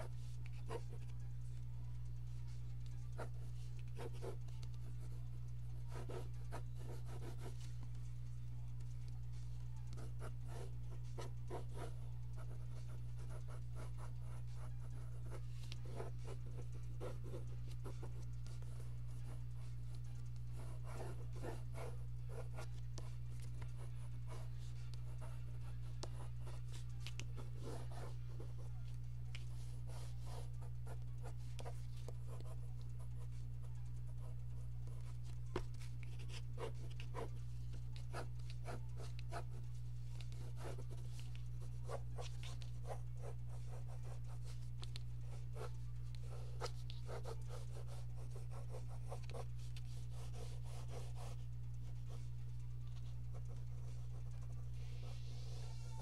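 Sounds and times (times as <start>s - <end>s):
low electrical hum: 0.0s - 56.0s
pencil scratching on paper: 0.0s - 56.0s.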